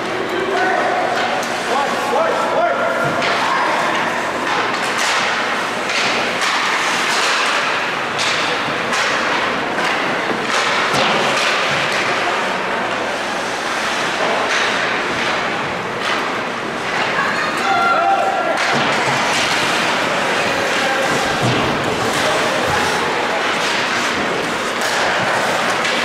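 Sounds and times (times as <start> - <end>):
echoing rink din: 0.0 - 26.0
hockey sticks and puck knocking: 3.0 - 17.8, 18.4 - 26.0
skate blades scraping ice: 3.4 - 12.2, 18.9 - 26.0.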